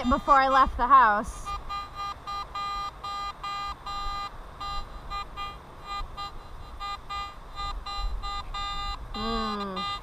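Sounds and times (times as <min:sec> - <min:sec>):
metal detector short beeps: 0:01.4 - 0:10.0.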